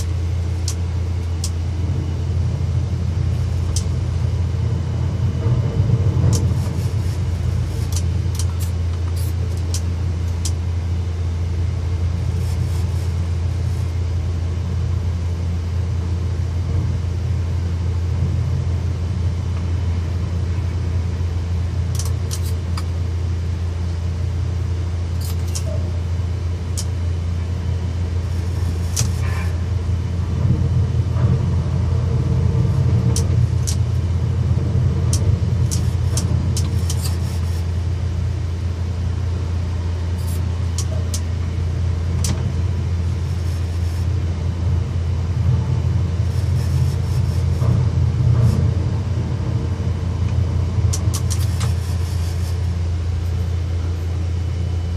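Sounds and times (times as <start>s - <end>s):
crane machinery humming: 0.0s - 54.9s
sharp mechanical clicks: 21.9s - 22.9s, 33.1s - 33.9s, 35.1s - 37.2s, 50.9s - 51.8s.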